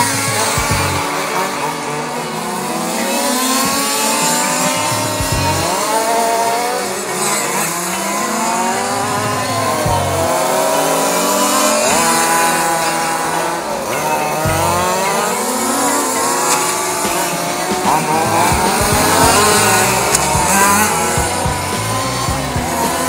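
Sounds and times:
small two-stroke engines revving: 0.0 - 23.0.

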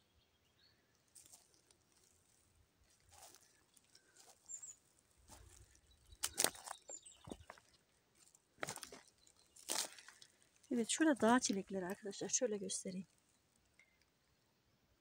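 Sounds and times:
footsteps on dry leaves: 1.2 - 12.1
high bird chirps: 3.2 - 4.8, 5.5 - 7.8.

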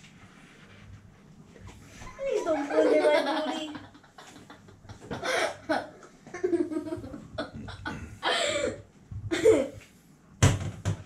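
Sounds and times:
person laughing: 2.5 - 9.8.

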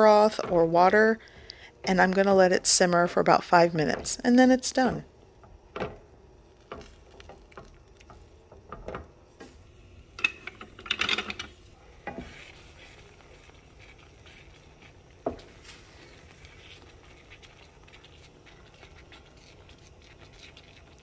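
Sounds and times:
beans sizzling: 0.0 - 10.8, 11.5 - 21.0
wooden utensils clattering: 10.2 - 12.3
masher scraping beans in skillet: 11.5 - 21.0.

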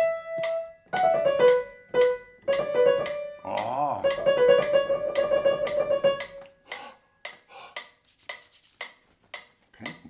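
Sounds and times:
piano trill: 0.0 - 6.5.

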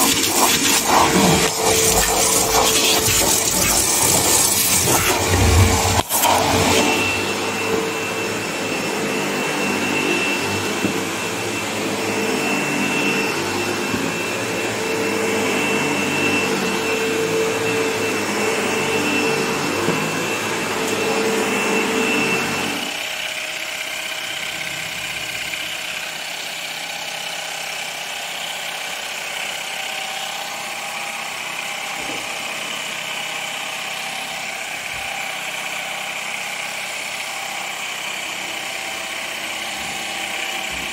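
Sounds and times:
sprayer whirring: 0.0 - 40.9
vacuum cleaner motor whining: 0.0 - 40.9.

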